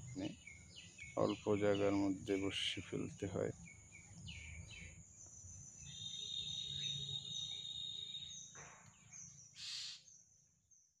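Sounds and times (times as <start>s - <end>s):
high insect drone: 0.0s - 8.5s.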